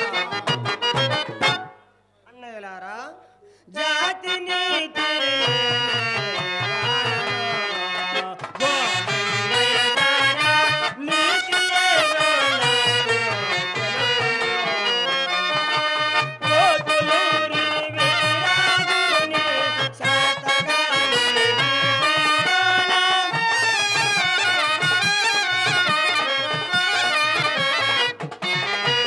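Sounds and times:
reedy instrumental melody: 0:00.0 - 0:02.1, 0:03.8 - 0:29.0.

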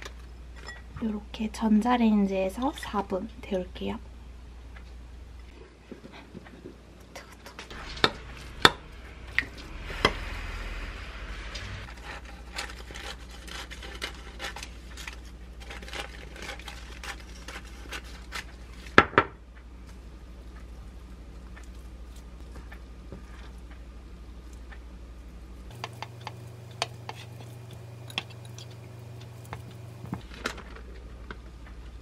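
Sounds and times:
metal spoon scraping: 0:25.7 - 0:30.1.

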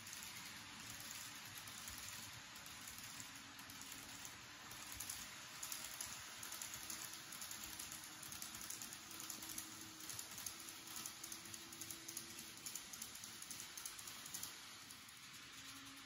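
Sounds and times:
faint motor hum: 0:00.0 - 0:16.0
model train wheels clicking: 0:00.0 - 0:16.0
train rolling rattle: 0:00.0 - 0:16.0.

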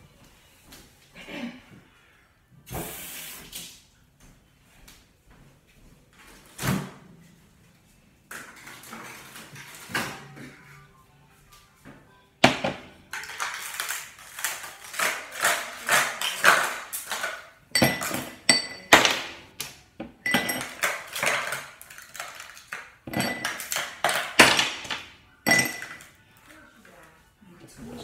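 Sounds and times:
dishes clattering and scraping: 0:08.3 - 0:10.5, 0:12.4 - 0:26.1.

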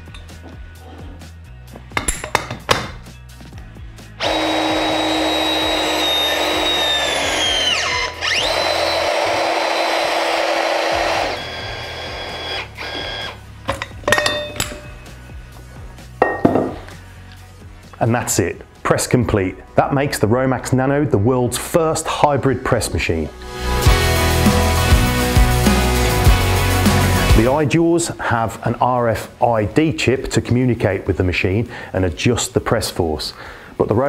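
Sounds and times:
press machine motor whine: 0:04.2 - 0:13.4.

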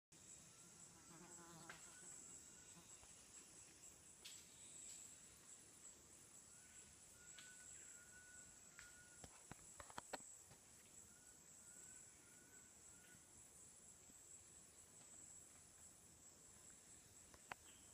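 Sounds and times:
high-pitched insect chorus: 0:00.1 - 0:17.9
cluster of clicks: 0:08.8 - 0:10.6.

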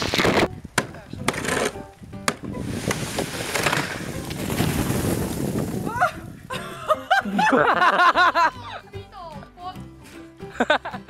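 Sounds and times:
snow sliding off roof: 0:02.5 - 0:06.6
person crying out: 0:05.9 - 0:06.2.

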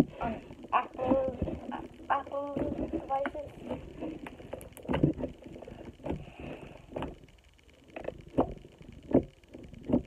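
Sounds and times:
slime squelching and popping: 0:02.6 - 0:07.3.

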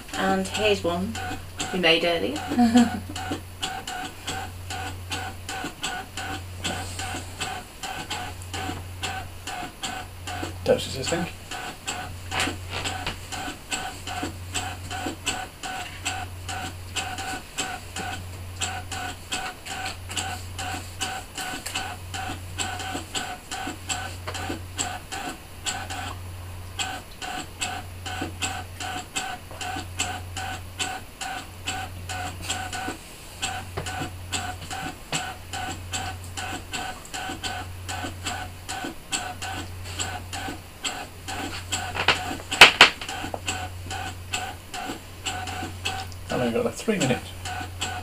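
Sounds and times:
quick mechanical ticks: 0:00.0 - 0:26.2, 0:26.8 - 0:48.0
cutting machine motors whirring: 0:00.0 - 0:48.0.

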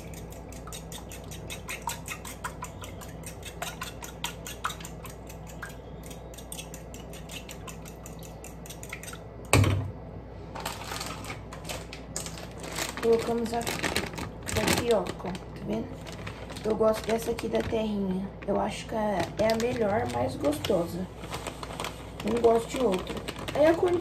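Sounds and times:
fork beating eggs in bowl: 0:00.0 - 0:09.3.

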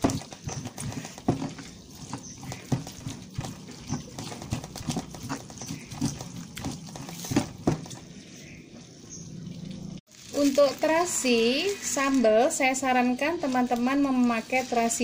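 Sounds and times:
stone pestle grinding in mortar: 0:00.0 - 0:08.0.

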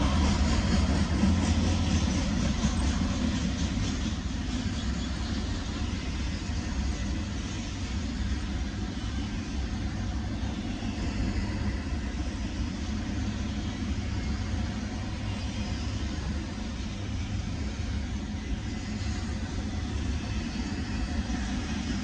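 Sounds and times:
freight train wheels rumbling on rails: 0:00.0 - 0:22.0.

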